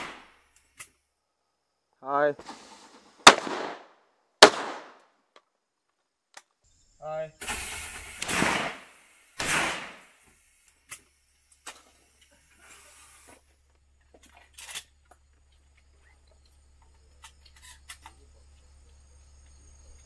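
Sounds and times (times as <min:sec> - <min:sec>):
shotgun shot: 0:00.0 - 0:00.4, 0:03.2 - 0:05.0, 0:07.4 - 0:10.2.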